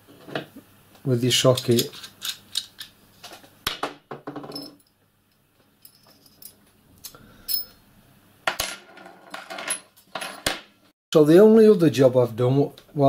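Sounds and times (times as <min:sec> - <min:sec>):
steel parts clinking: 0:01.5 - 0:02.9, 0:07.4 - 0:07.8.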